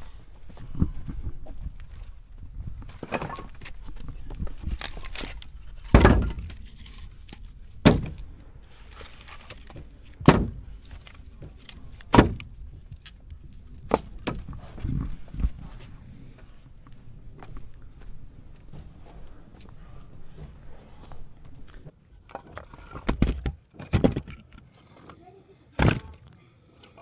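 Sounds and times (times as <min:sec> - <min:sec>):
sharp heavy thunks: 0:05.8 - 0:06.5, 0:07.8 - 0:08.3, 0:10.1 - 0:10.8, 0:12.0 - 0:12.6.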